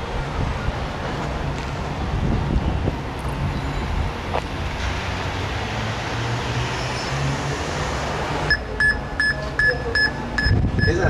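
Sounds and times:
wind on microphone: 0:01.9 - 0:04.4, 0:10.4 - 0:11.0
detector high-pitched beeps: 0:08.5 - 0:11.0.

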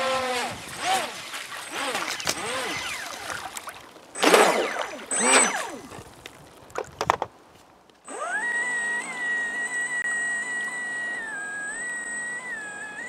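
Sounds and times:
electric motor whining: 0:00.0 - 0:03.6, 0:04.2 - 0:06.1, 0:08.1 - 0:13.0.

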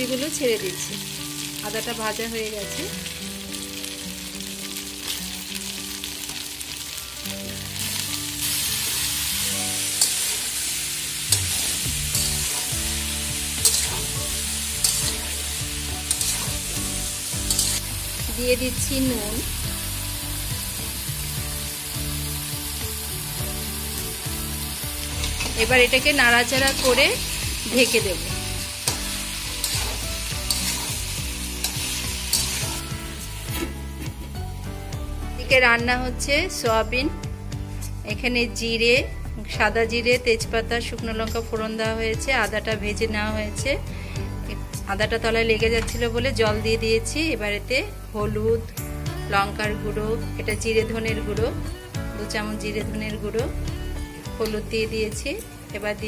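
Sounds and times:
vegetables sizzling in oil: 0:00.0 - 0:39.0, 0:39.7 - 0:56.0
metal spatula scraping pan: 0:11.3 - 0:17.9, 0:28.8 - 0:34.1.

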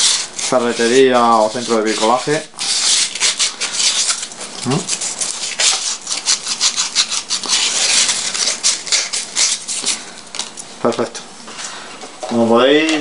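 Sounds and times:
sandpaper rubbing on plastic: 0:00.0 - 0:10.0.

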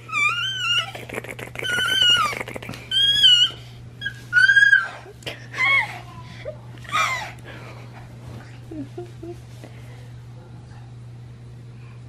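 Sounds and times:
baby squealing: 0:00.0 - 0:05.0.

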